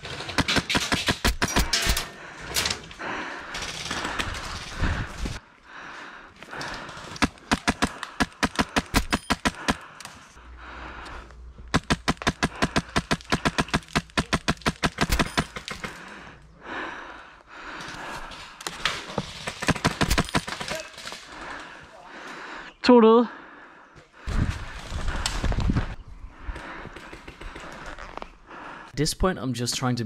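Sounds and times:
airsoft rifle rapid shots: 0:07.5 - 0:09.8, 0:11.7 - 0:15.9.

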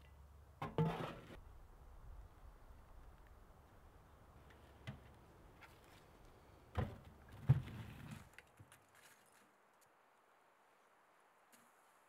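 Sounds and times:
wood scraping over coals: 0:00.7 - 0:01.4.

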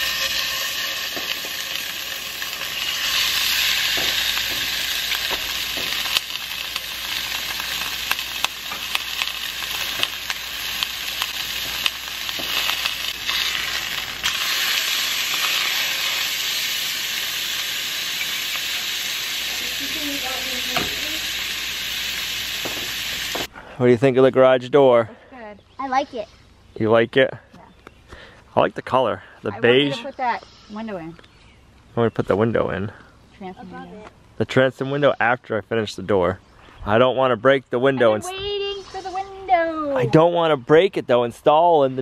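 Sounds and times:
meat and fish sizzling in pans: 0:00.0 - 0:23.5.

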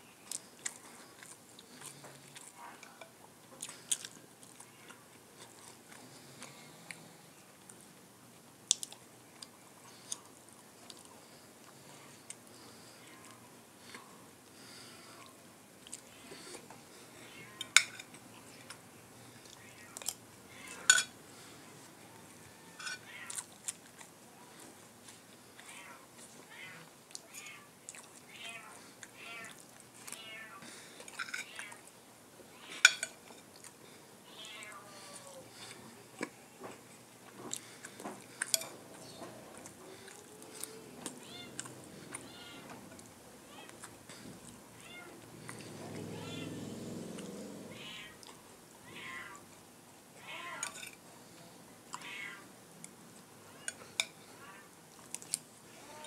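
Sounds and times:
chewing: 0:00.2 - 0:07.9, 0:08.7 - 0:16.8, 0:21.4 - 0:26.4, 0:27.1 - 0:31.9, 0:32.7 - 0:34.0, 0:34.6 - 0:44.6, 0:45.2 - 0:47.6, 0:53.6 - 0:55.5
cutlery clinking on ceramic plate: 0:20.8 - 0:21.1, 0:22.8 - 0:23.0, 0:32.8 - 0:33.4, 0:38.4 - 0:38.8
cat meowing: 0:28.3 - 0:29.6, 0:34.3 - 0:35.4, 0:40.8 - 0:42.8, 0:44.8 - 0:45.2, 0:46.0 - 0:46.7, 0:47.7 - 0:49.4, 0:50.2 - 0:50.8, 0:52.0 - 0:52.5.

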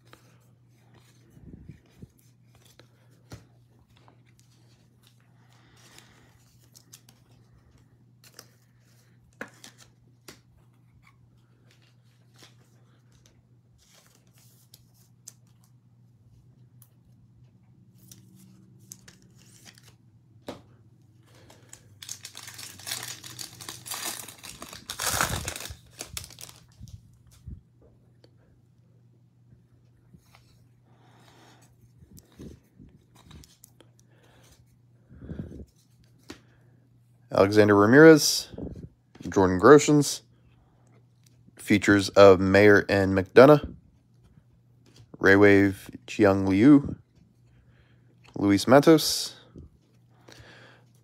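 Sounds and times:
low steady hum: 0:00.0 - 0:51.0
foil pack crinkling: 0:21.4 - 0:27.4.

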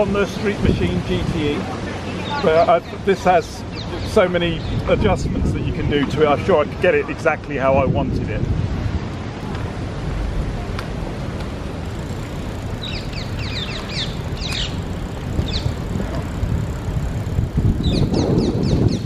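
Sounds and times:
wind and road noise: 0:00.0 - 0:19.0
small bird chirping: 0:12.8 - 0:15.9, 0:17.7 - 0:19.0.

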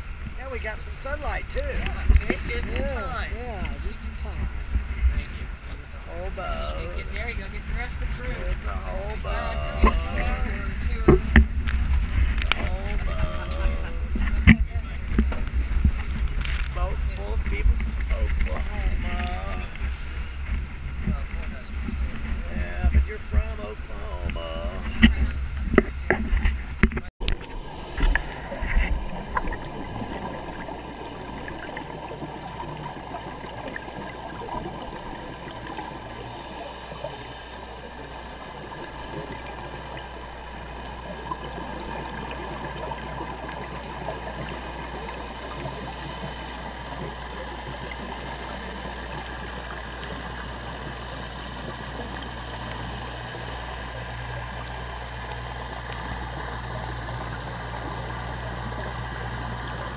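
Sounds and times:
dense crackling hiss: 0:00.0 - 0:59.9
muffled low underwater rumble: 0:00.0 - 0:59.9
faint high hisses: 0:27.3 - 0:28.8, 0:36.1 - 0:38.0, 0:45.2 - 0:47.0.

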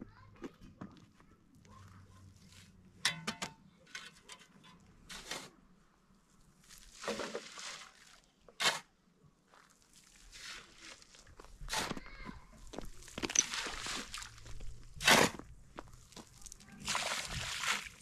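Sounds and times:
shovel scraping sand and gravel: 0:05.0 - 0:05.6, 0:06.6 - 0:09.0, 0:10.0 - 0:12.0, 0:13.0 - 0:15.5
gravel pouring into wheelbarrow: 0:06.6 - 0:08.2, 0:09.6 - 0:11.3, 0:13.1 - 0:14.5.

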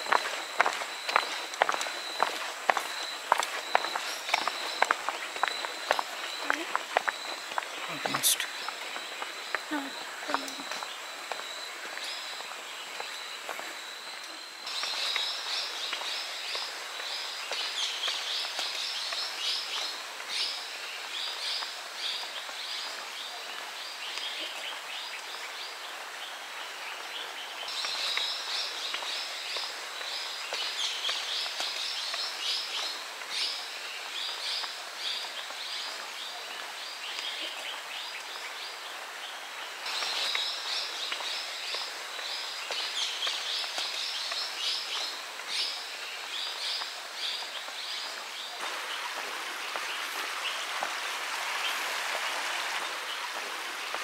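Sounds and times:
thin high tone: 0:00.0 - 0:15.8
birds twittering: 0:00.0 - 0:50.8
outdoor hiss: 0:00.0 - 0:54.0.

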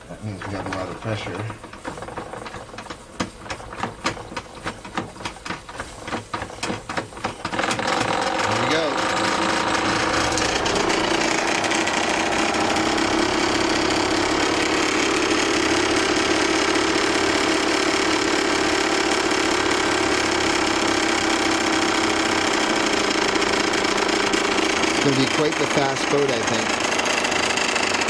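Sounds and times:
model steam engine clattering: 0:00.0 - 0:28.0.

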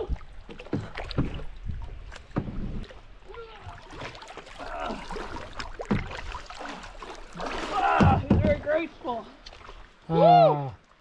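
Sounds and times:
water splashing and lapping: 0:00.0 - 0:11.0
knocks on paddleboard: 0:08.0 - 0:08.7.

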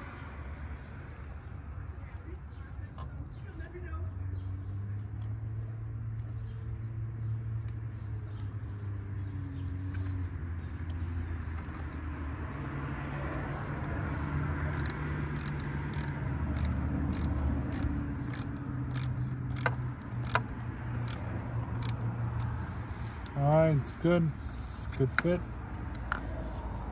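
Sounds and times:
sharp clicks: 0:14.6 - 0:22.6.

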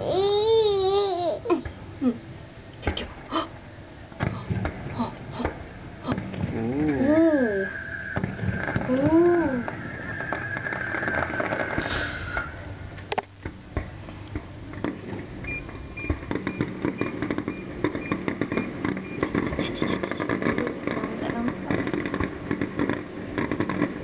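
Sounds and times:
distant fireworks popping: 0:04.2 - 0:24.0
voice-like sound: 0:05.0 - 0:07.7
faint regular beep: 0:15.5 - 0:20.3.

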